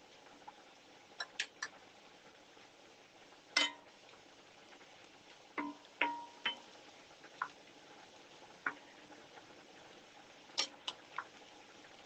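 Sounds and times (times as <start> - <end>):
chicken sizzling in a pan: 0.0 - 12.0
wooden spoon tapping a pan: 1.2 - 1.8, 3.6 - 3.9, 5.6 - 6.7, 7.3 - 7.6, 8.6 - 8.9, 10.6 - 11.4.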